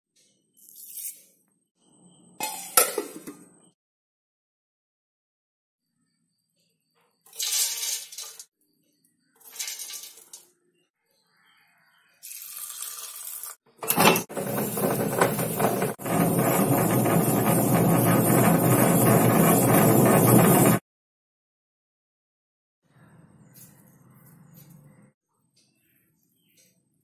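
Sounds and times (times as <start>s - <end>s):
wet grinder grinding: 13.8s - 20.8s.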